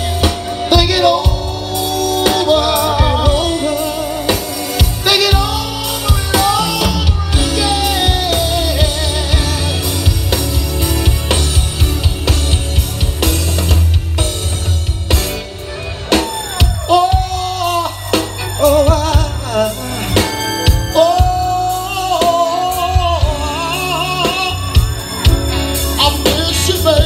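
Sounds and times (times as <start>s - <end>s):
man singing with vibrato: 0.0s - 10.4s, 16.5s - 27.0s
deep heavy bass: 0.0s - 27.0s
drum kit: 0.0s - 27.0s
electric guitar: 0.0s - 27.0s
keyboard: 0.0s - 27.0s.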